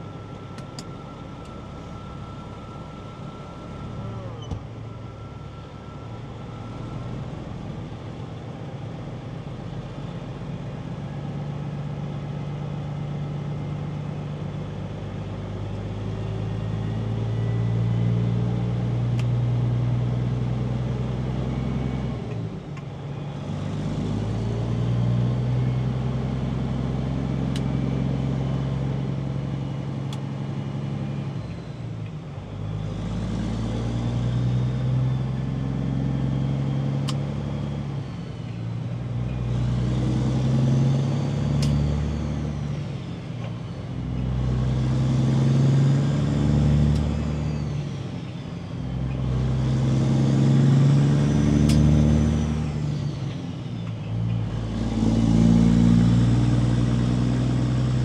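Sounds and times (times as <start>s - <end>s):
truck diesel engine shifting gears: 0.0s - 58.0s.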